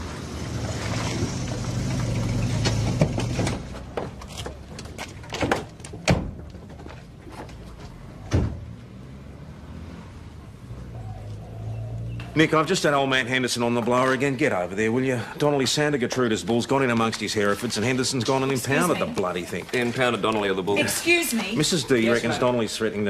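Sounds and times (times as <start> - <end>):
car doors clunking shut: 8.1 - 8.7.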